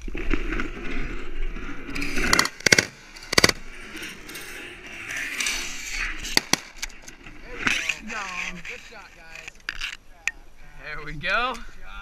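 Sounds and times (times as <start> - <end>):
short sharp cracks: 1.9 - 10.0
shotgun blasts: 2.2 - 3.6.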